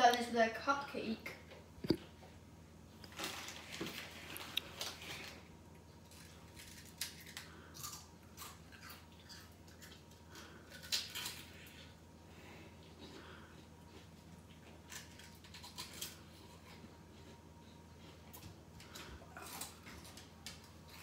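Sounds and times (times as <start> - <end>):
crisp packet rustling: 3.0 - 5.4
crunching and chewing snacks: 3.0 - 21.0.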